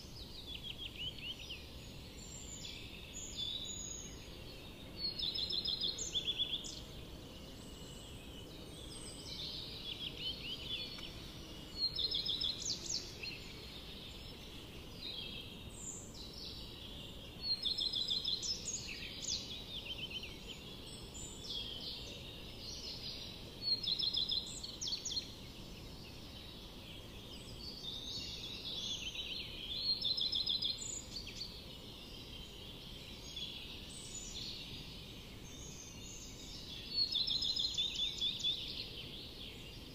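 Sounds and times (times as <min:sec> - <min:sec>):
small bird chirping trills: 0:00.0 - 0:39.9
steady low hiss: 0:00.0 - 0:39.9.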